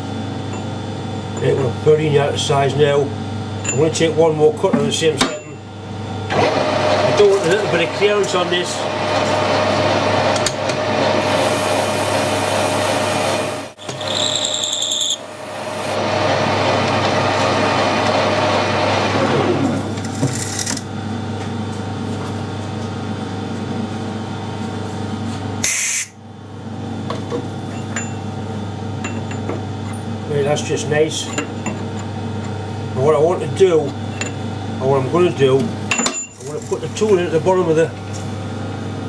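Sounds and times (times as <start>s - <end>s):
lathe motor humming: 5.7s - 21.3s
lathe cutting hiss: 10.8s - 18.2s.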